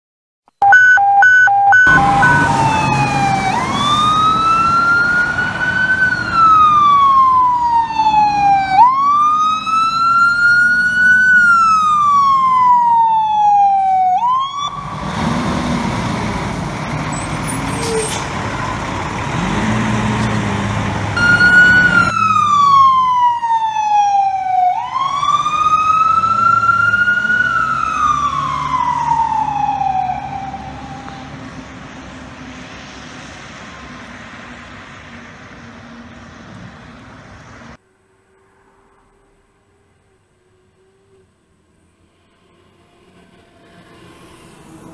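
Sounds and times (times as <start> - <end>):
short siren blasts: 0.6 - 15.1, 21.2 - 31.4
fire engine siren wailing: 0.6 - 35.1
truck engine rumbling: 0.6 - 44.9.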